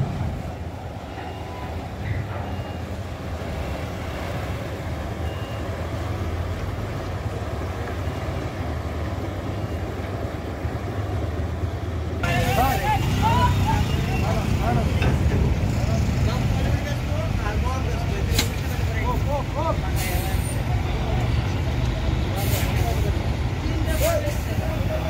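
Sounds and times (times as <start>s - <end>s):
bus diesel engine rumbling: 0.0s - 25.0s
faint high beeps: 1.0s - 6.0s.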